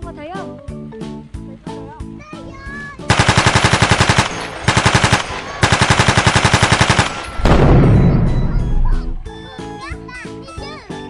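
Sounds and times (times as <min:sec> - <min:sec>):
machine-gun fire: 0:03.1 - 0:09.4
deep boom: 0:07.4 - 0:09.5.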